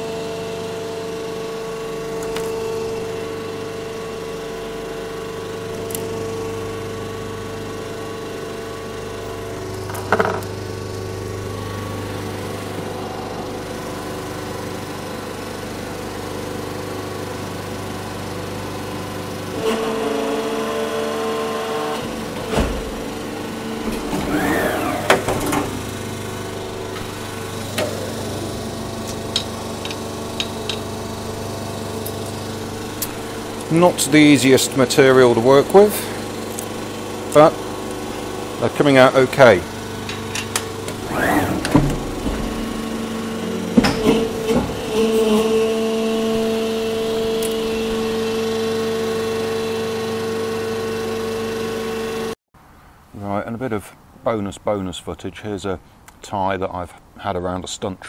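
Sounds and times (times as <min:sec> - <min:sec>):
injection moulding machine humming: 0:00.0 - 0:52.3
machine knocks and clicks: 0:40.0 - 0:42.9, 0:43.7 - 0:44.9.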